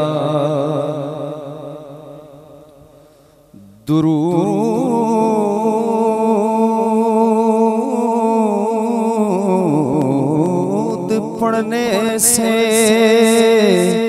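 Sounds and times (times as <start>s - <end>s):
man singing long held note: 3.6s - 14.0s.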